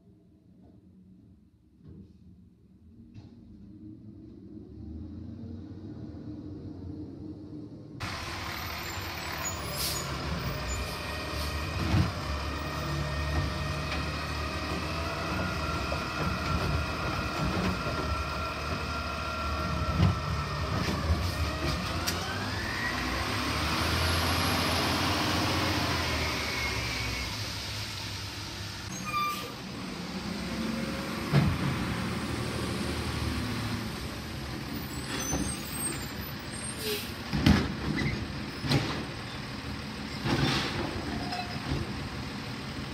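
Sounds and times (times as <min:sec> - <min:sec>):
garbage truck diesel engine: 0:08.0 - 0:42.9
sharp knocks of carts: 0:37.3 - 0:39.3.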